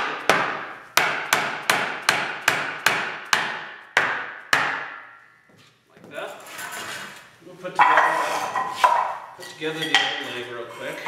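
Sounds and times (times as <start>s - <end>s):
hammer tapping log: 0.2s - 5.0s.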